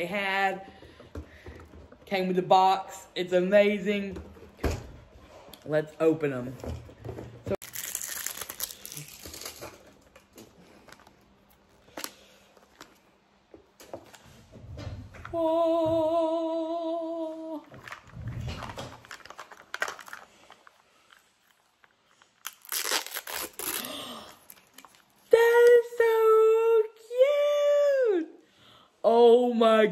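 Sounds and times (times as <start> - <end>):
foil wrapper crinkling: 7.6 - 13.0, 17.7 - 25.2
plastic wrap crinkling and tearing: 7.6 - 13.0, 17.6 - 25.3.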